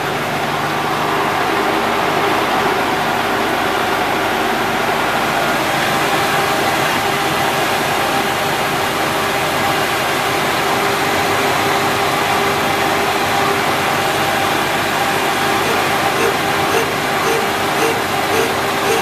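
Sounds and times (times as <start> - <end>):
boring mill humming with whine: 8.2 - 19.0.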